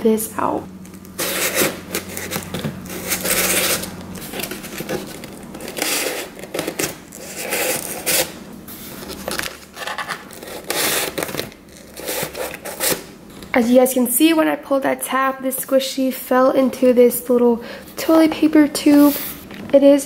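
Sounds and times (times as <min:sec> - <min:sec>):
cardboard and paper rustling: 0:00.9 - 0:13.0.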